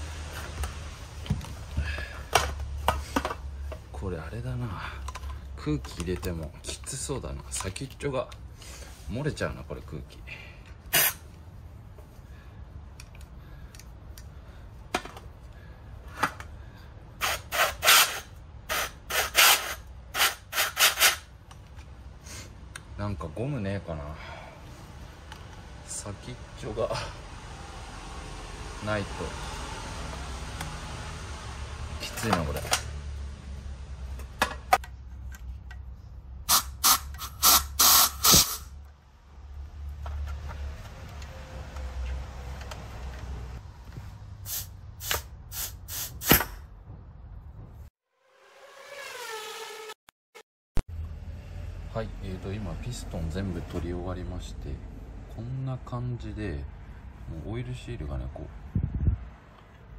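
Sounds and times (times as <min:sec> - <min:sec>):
compressed air blasts: 0:10.8 - 0:11.3, 0:36.4 - 0:38.8, 0:44.4 - 0:46.7
air leaking from nozzle: 0:10.9 - 0:11.2, 0:36.5 - 0:38.7, 0:44.4 - 0:46.5.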